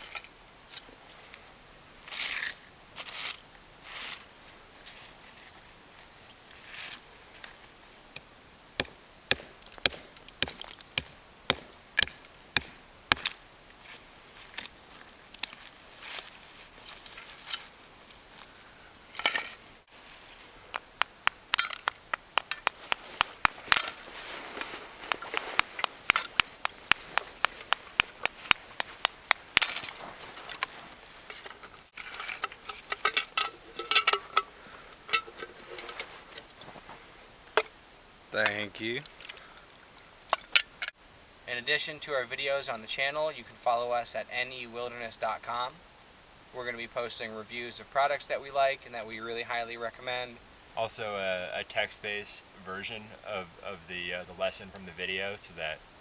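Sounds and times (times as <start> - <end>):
hatchet chopping ice: 8.8 - 13.4.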